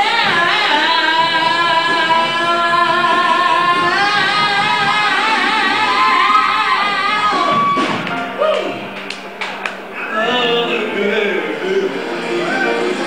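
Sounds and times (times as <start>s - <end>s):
band accompaniment: 0.0s - 13.0s
man singing: 10.0s - 13.0s.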